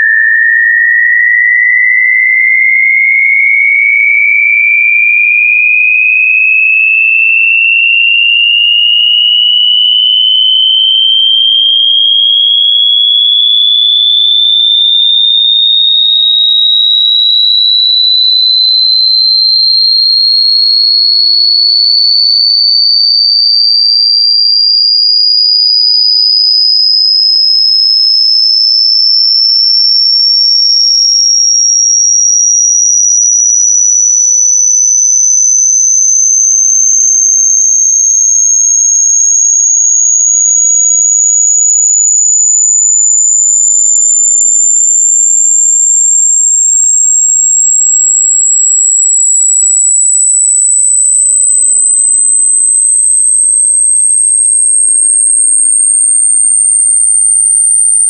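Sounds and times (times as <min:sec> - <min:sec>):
rising sine tone sweep: 0:08.1 - 0:12.7, 0:30.6 - 0:58.0.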